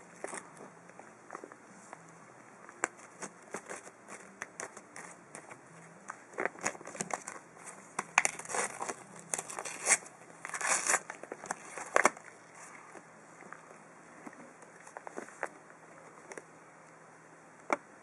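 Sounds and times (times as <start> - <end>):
paper crinkling and ripping: 2.8 - 12.9.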